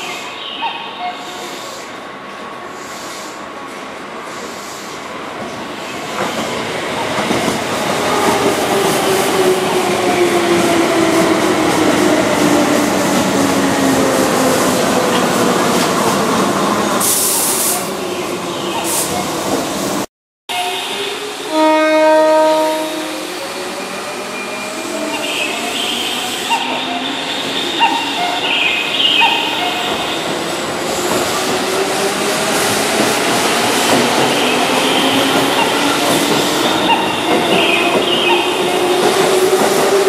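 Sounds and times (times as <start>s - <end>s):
train horn blast: 20.6s - 23.2s.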